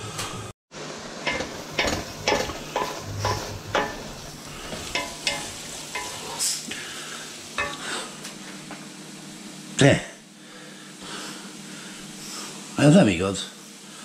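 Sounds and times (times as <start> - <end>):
liver sizzling in a pan: 0.8 - 9.8
utensil scraping a pan: 1.2 - 6.6, 7.6 - 8.2.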